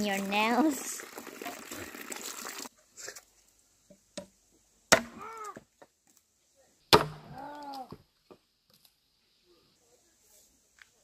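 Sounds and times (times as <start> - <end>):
machete chopping wood: 4.9 - 5.4, 6.9 - 7.8.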